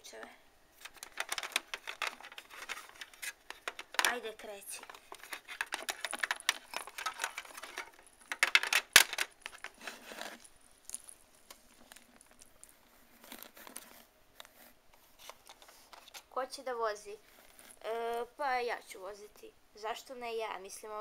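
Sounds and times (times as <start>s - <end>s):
plastic figurines clicking and rustling: 0.8s - 16.4s.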